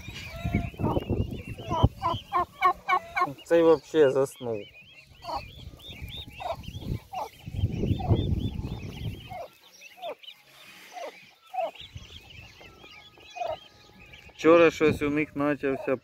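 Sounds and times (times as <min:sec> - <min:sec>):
turkey poults peeping: 0:00.0 - 0:16.0
turkeys calling: 0:00.0 - 0:16.0.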